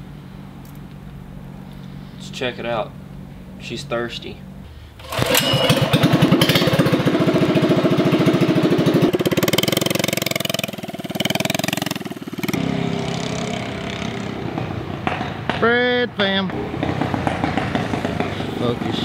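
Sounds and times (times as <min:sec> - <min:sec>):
minibike engine starting and running: 0:05.0 - 0:15.6, 0:16.3 - 0:19.0.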